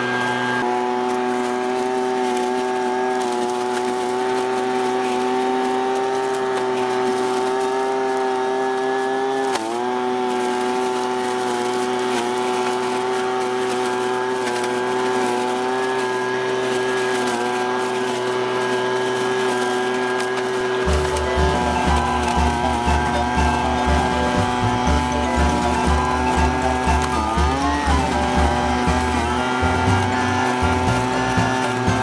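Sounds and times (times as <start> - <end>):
dry leaves sucked up: 0.0 - 32.0
leaf blower vacuum engine: 0.0 - 32.0.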